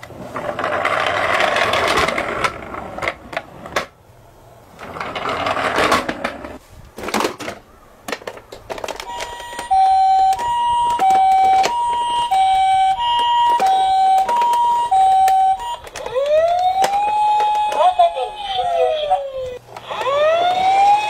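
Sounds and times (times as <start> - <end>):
plastic toy cars rattling in box: 4.8 - 12.4
toy two-tone electronic siren: 8.9 - 21.0.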